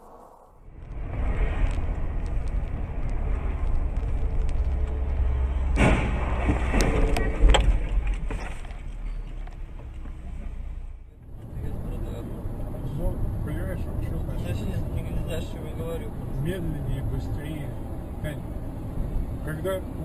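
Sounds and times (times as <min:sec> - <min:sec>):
car crash: 0:00.0 - 0:10.7
road and engine rumble: 0:00.0 - 0:20.0
bangs and crunches: 0:00.8 - 0:08.9.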